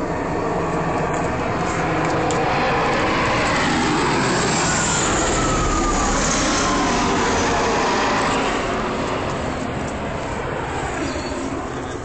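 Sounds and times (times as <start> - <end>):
aircraft rotors rumbling: 0.0 - 12.0
engine whine falling in pitch: 0.8 - 9.4.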